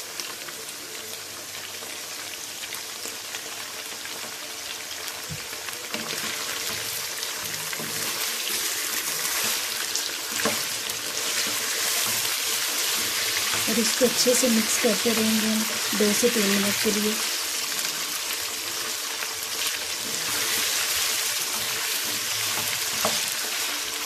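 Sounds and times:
chicken frying in oil: 0.0 - 24.0
wooden spatula turning food: 5.1 - 24.0.

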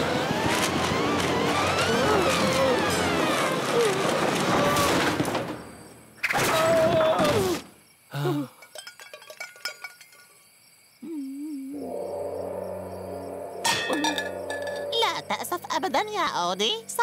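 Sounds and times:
debris clattering and knocking: 0.2 - 5.8, 8.6 - 10.4, 13.7 - 15.3
cartoon crash: 1.4 - 5.5.

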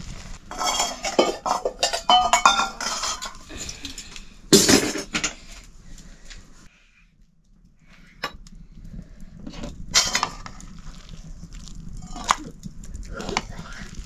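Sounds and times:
dishes and utensils clattering: 0.5 - 5.5.

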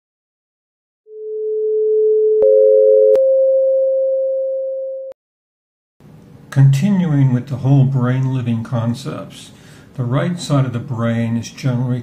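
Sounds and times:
higher electronic pure tone: 1.1 - 5.2
lower electronic pure tone: 1.1 - 5.2.

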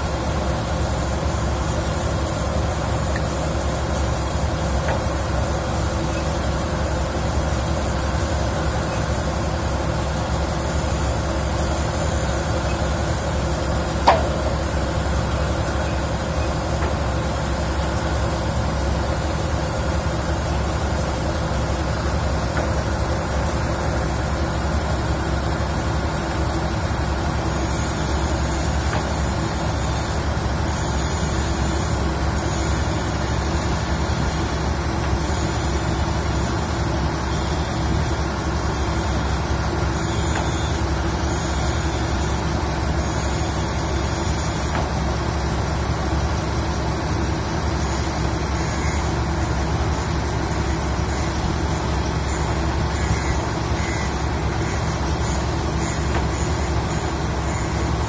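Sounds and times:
heavy diesel machinery droning: 0.0 - 58.0.

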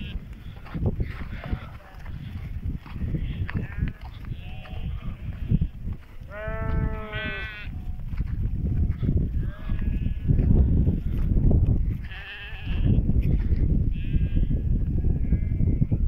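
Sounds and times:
sheep bleating: 3.1 - 5.7, 6.3 - 7.8, 9.4 - 10.5, 12.0 - 13.0.

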